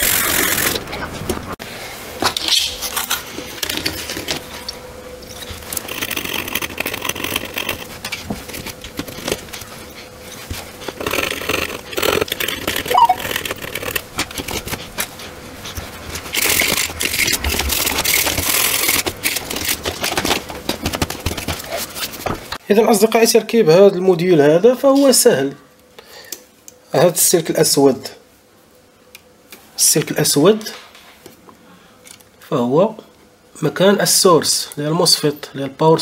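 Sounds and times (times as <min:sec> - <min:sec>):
tools scraping and clicking on board: 0:05.3 - 0:15.1.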